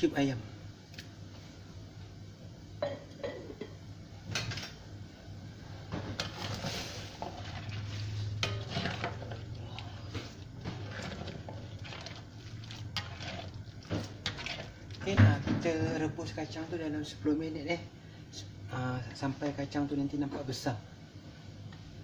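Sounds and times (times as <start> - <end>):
steady low hum: 0.0 - 22.0
spatula scraping a wok: 6.2 - 15.2.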